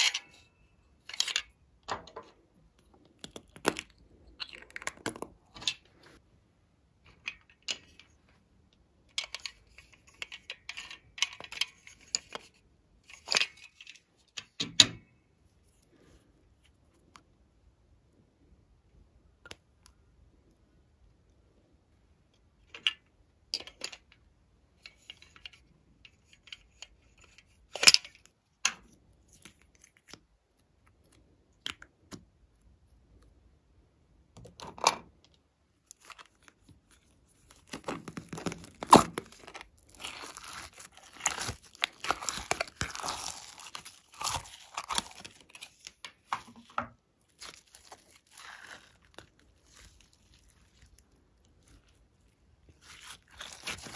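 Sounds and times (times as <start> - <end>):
crunchy slime crackling: 35.8 - 46.4, 47.2 - 53.9.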